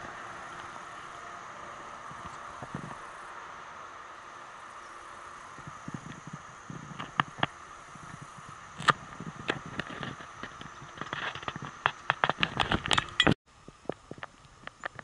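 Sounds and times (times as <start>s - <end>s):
footsteps on a trail: 5.5s - 13.3s.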